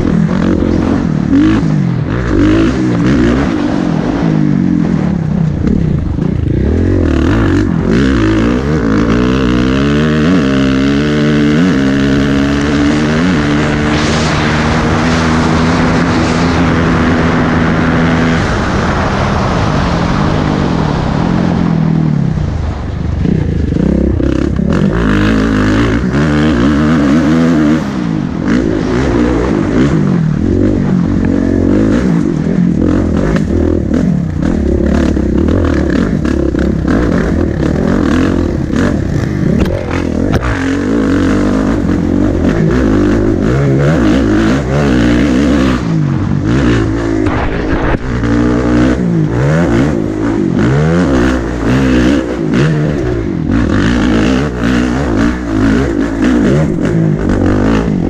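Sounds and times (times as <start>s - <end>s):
dirt bike engine revving: 0.0s - 58.0s
rush of air: 13.4s - 25.3s, 45.8s - 50.6s.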